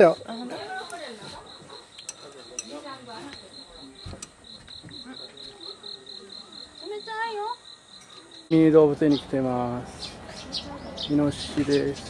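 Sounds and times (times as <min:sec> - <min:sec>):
insect chirping: 0:00.0 - 0:09.0
faint voices: 0:00.0 - 0:12.0.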